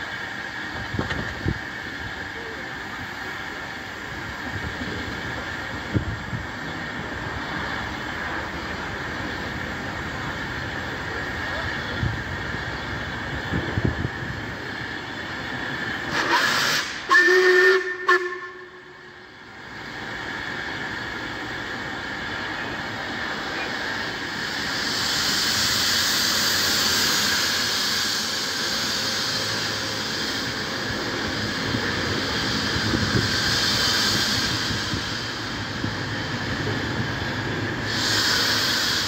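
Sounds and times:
hiss of escaping steam: 0:00.0 - 0:39.0
steam locomotive whistle: 0:16.1 - 0:19.2.

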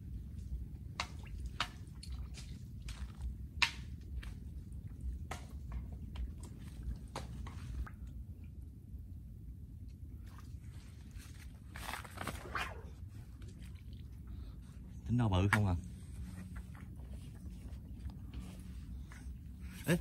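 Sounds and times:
steady low rumble: 0:00.0 - 0:20.0
wet pops at water surface: 0:00.9 - 0:04.4, 0:05.2 - 0:07.4.

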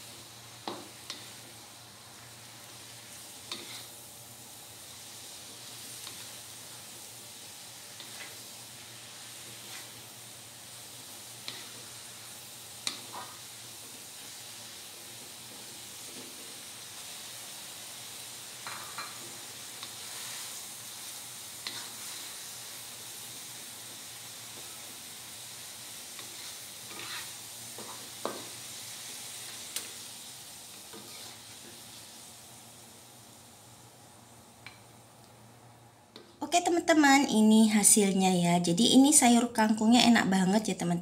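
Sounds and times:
wooden spatula scraping a wok: 0:00.0 - 0:04.0, 0:04.9 - 0:16.8, 0:18.6 - 0:30.1, 0:30.7 - 0:32.2
greens sizzling in a wok: 0:00.0 - 0:41.0.

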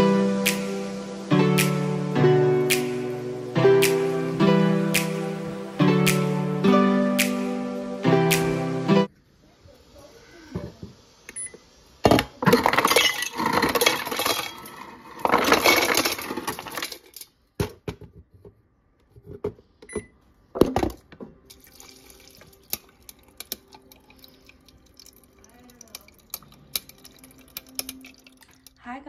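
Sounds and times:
water pouring into metal tumbler: 0:21.5 - 0:28.8.

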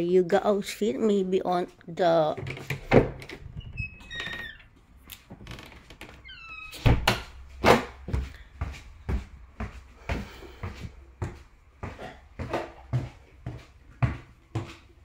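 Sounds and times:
footsteps on wooden staircase: 0:07.6 - 0:14.9.

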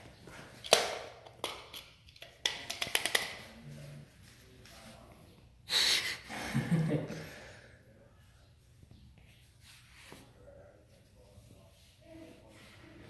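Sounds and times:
sharp clicks and taps: 0:00.6 - 0:03.4.

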